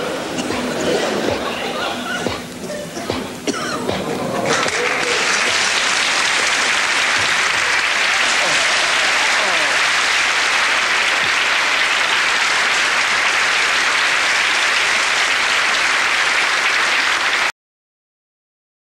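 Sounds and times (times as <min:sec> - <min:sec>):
audience applauding: 0:04.0 - 0:17.5.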